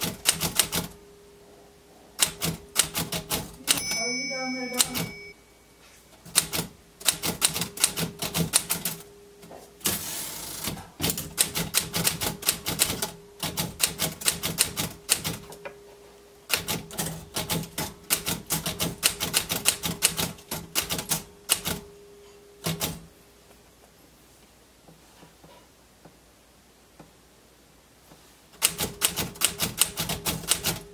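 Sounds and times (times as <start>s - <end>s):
typewriter key strikes: 28.6s - 30.9s.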